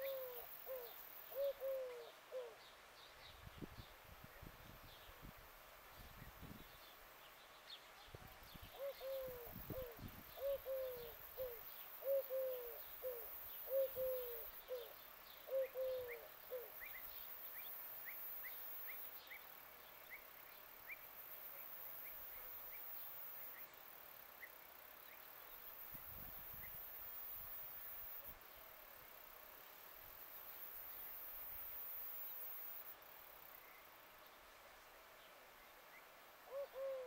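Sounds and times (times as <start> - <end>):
dove cooing: 0.0 - 2.6, 8.7 - 16.8, 36.5 - 37.0.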